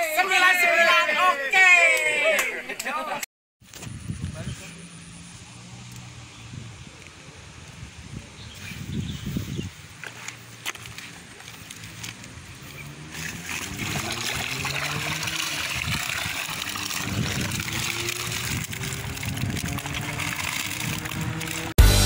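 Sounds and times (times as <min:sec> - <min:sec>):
water splashing and trickling: 0:09.3 - 0:21.8
fish thrashing in net: 0:13.1 - 0:21.7.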